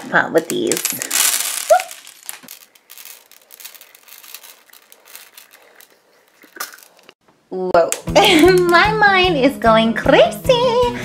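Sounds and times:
beads pattering onto a tabletop: 0:00.3 - 0:07.2.

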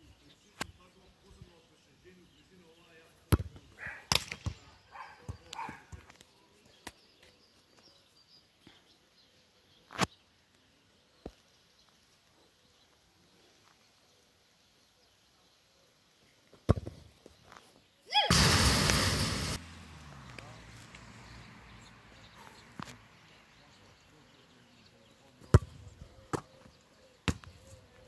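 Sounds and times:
football kicked thumps: 0:16.7 - 0:17.1, 0:27.2 - 0:27.6.

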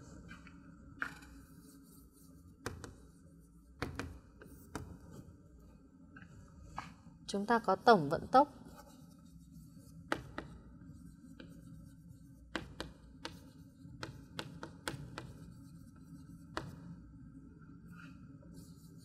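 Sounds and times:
chalk tapping and scratching on board: 0:00.3 - 0:05.2, 0:08.6 - 0:17.0.

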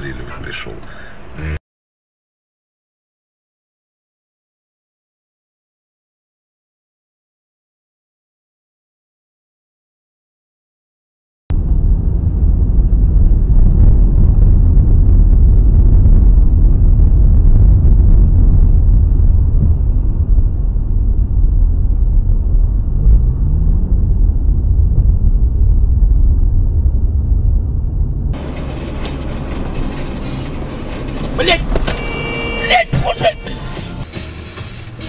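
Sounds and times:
faint rising engine tone: 0:11.5 - 0:31.4
car engine rumble in cabin: 0:11.5 - 0:35.0
tyres on wet road: 0:20.6 - 0:35.0.

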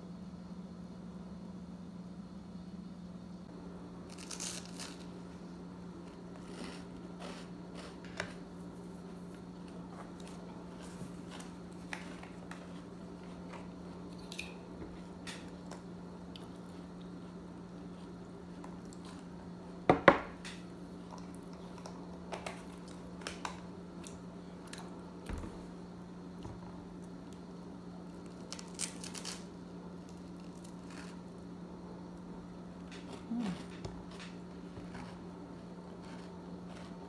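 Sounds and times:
steady low hum: 0:00.0 - 0:37.0
chewing: 0:15.6 - 0:19.3.

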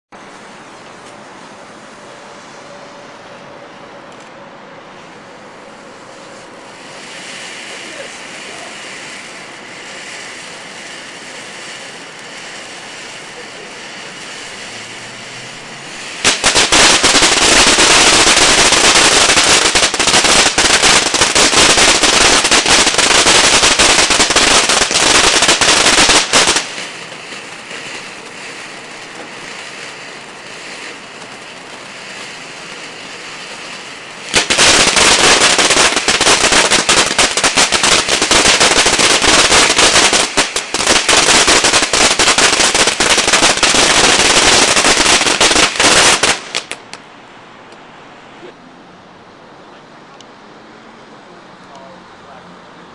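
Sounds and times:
firework crackling loudly: 0:04.9 - 0:48.3
hiss of sparks: 0:05.8 - 0:47.0.

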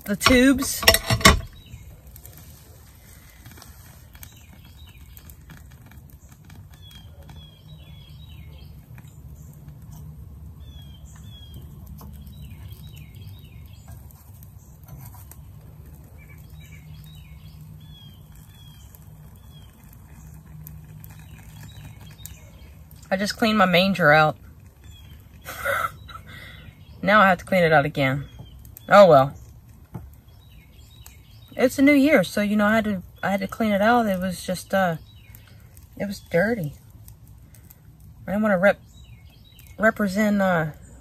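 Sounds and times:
birds chirping: 0:00.0 - 0:02.4, 0:03.0 - 0:41.0
wood fire crackling: 0:00.0 - 0:41.0.

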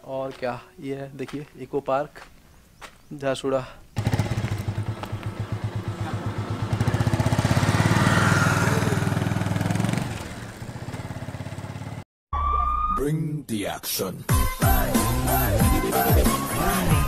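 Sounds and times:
motorcycle engine pulling away: 0:04.0 - 0:12.0.

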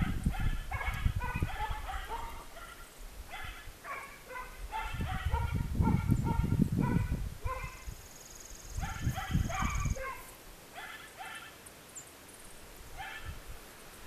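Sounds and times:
wind rumbling on microphone: 0:00.0 - 0:10.4, 0:12.9 - 0:13.8
dog yapping: 0:00.4 - 0:07.8, 0:08.8 - 0:11.5, 0:13.0 - 0:13.3.

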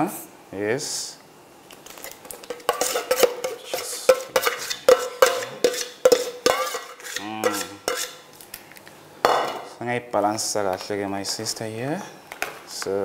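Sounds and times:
utensil scraping a bowl: 0:02.5 - 0:08.3.

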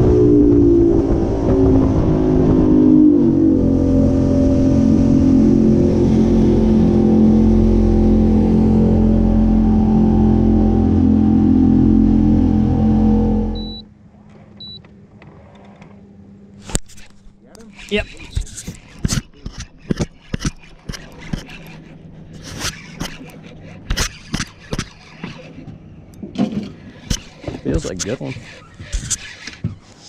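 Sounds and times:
water and wind rushing: 0:00.0 - 0:13.8
boat engine running: 0:00.0 - 0:15.2, 0:15.9 - 0:30.0
short high beeps: 0:13.6 - 0:13.8.

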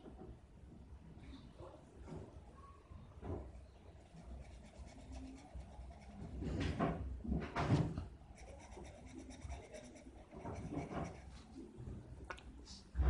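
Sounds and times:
felt-tip pen scratching on paper: 0:04.0 - 0:06.8, 0:08.3 - 0:11.5.

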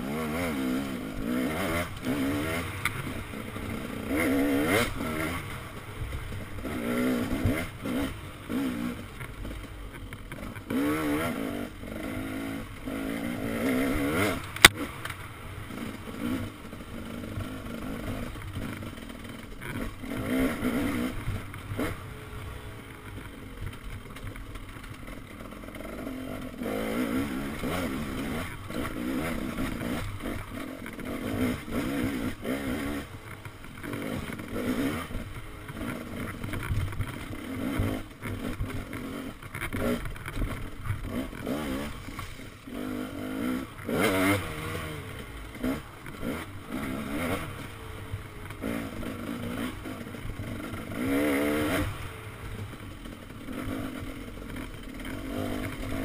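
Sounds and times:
dirt bike engine revving: 0:00.0 - 0:56.0
sharp crack: 0:14.4 - 0:15.2.

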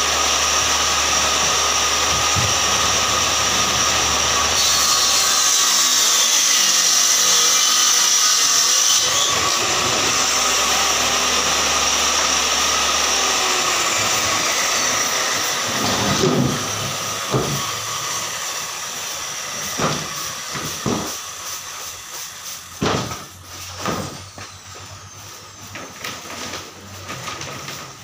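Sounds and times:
woodworking machine spinning down: 0:00.0 - 0:04.9, 0:09.0 - 0:21.3
wooden panels knocking: 0:15.8 - 0:17.7, 0:19.8 - 0:21.2, 0:22.8 - 0:23.2.

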